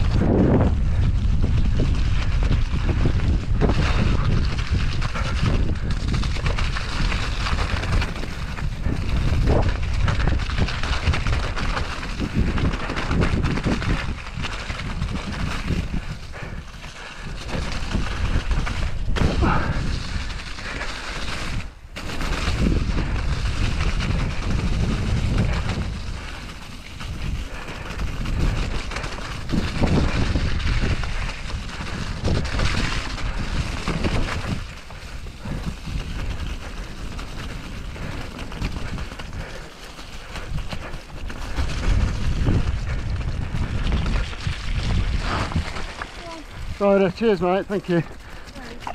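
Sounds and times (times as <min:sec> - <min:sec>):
tyres in mud: 0:00.0 - 0:48.9
wind on microphone: 0:00.0 - 0:48.9
bike knocks and rattles: 0:17.4 - 0:39.6.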